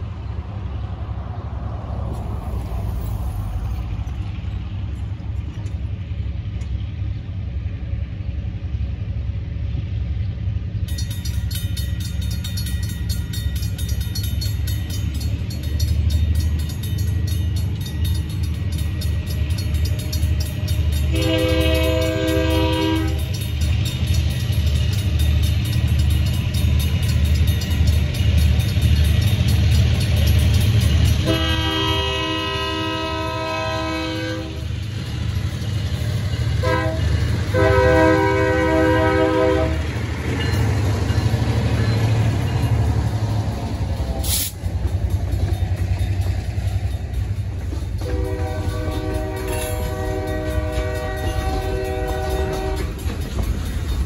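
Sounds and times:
railroad crossing bell ringing: 0:10.6 - 0:54.0
locomotive horn: 0:20.9 - 0:23.4, 0:31.2 - 0:34.8, 0:36.6 - 0:40.0, 0:43.6 - 0:44.6, 0:48.0 - 0:53.1.

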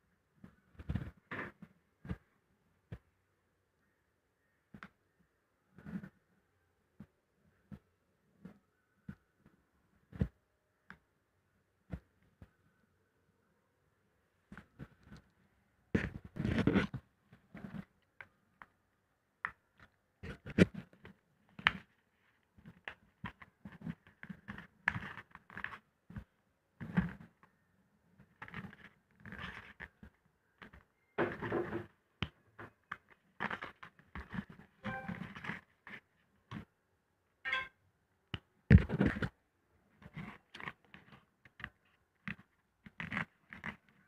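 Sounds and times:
paper rustling and crinkling: 0:33.0 - 0:36.1.

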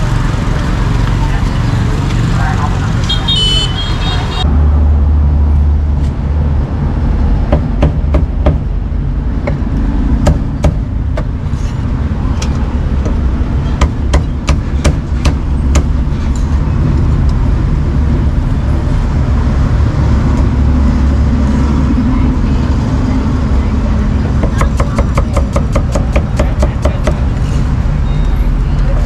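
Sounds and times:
cleaver chopping on wooden block: 0:24.4 - 0:27.2.

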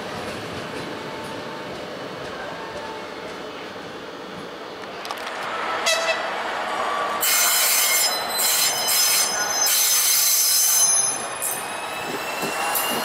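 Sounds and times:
train wheels squealing: 0:07.2 - 0:13.0.

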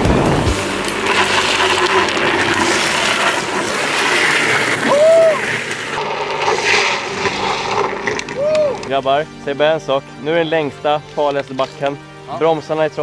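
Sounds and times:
plastic wheels scraping asphalt: 0:00.0 - 0:09.8.

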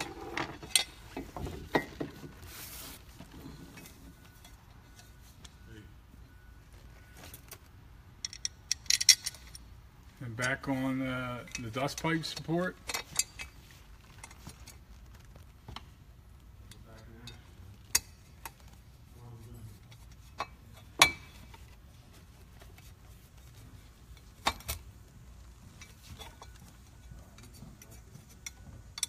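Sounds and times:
metal clinks and knocks: 0:00.0 - 0:02.4, 0:08.2 - 0:09.7, 0:11.4 - 0:14.9, 0:19.8 - 0:21.8, 0:25.6 - 0:29.0.

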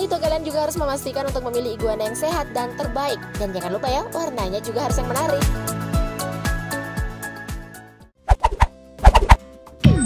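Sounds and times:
background music: 0:00.0 - 0:10.0
falling swoosh: 0:08.3 - 0:09.4.

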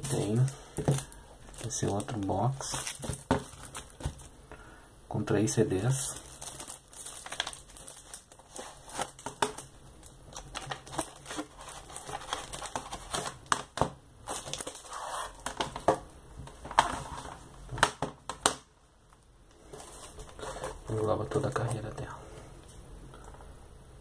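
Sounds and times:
plastic cases clicking and knocking: 0:00.8 - 0:01.1, 0:15.4 - 0:18.7
rustling: 0:19.5 - 0:21.9.

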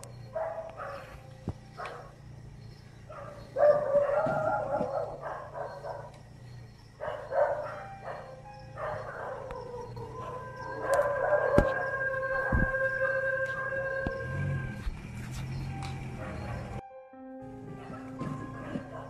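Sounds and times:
dogs barking: 0:00.0 - 0:16.8, 0:17.6 - 0:19.0
dogs howling: 0:00.3 - 0:01.2, 0:01.8 - 0:02.2, 0:03.0 - 0:06.2, 0:06.9 - 0:14.9, 0:16.0 - 0:16.8, 0:17.7 - 0:19.0.

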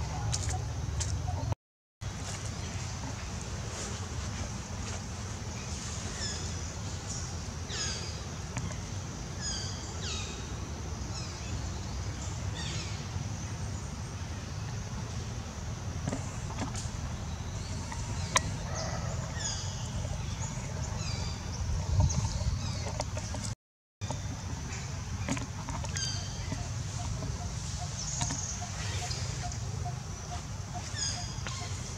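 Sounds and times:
birds chirping: 0:16.0 - 0:31.9
wind rumble on microphone: 0:16.3 - 0:28.6.

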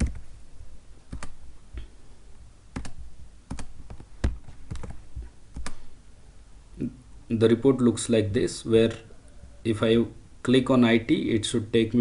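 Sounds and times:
keyboard and mouse clicks: 0:00.0 - 0:00.2, 0:01.1 - 0:01.4, 0:02.7 - 0:05.8.

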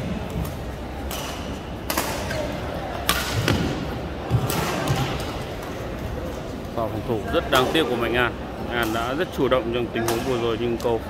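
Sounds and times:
rackets hitting shuttlecock: 0:00.4 - 0:05.7.

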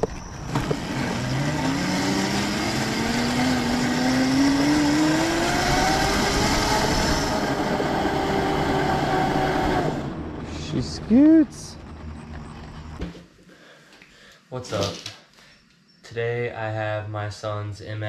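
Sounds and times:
electric motor whining: 0:00.5 - 0:13.0.

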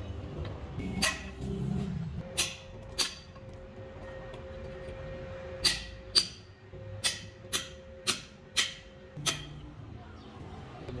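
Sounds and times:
hammer striking steel punch: 0:02.2 - 0:03.4, 0:05.6 - 0:09.6.

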